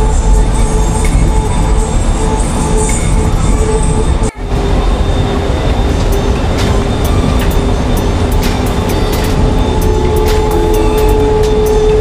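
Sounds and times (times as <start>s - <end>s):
music: 0.0s - 12.0s
train rumble and hum: 0.0s - 12.0s.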